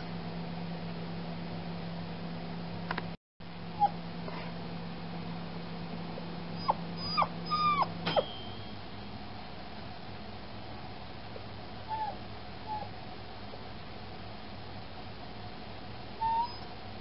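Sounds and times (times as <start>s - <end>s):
puppy whimpering: 3.8s - 4.5s, 6.6s - 8.2s, 11.9s - 12.9s, 16.2s - 16.7s.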